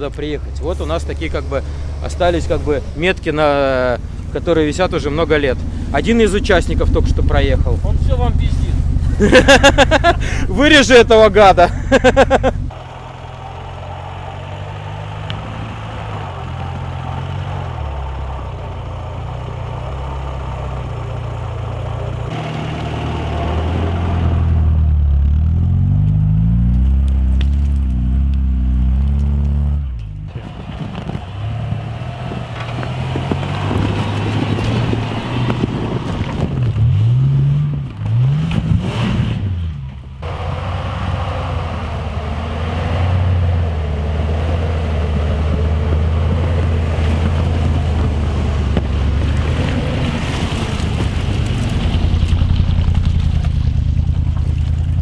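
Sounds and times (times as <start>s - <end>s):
off-road vehicle engines revving: 0.0s - 55.0s.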